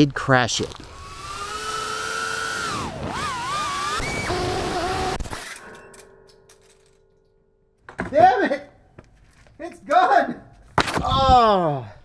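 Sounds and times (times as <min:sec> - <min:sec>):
drone motors whining: 0:00.8 - 0:05.6.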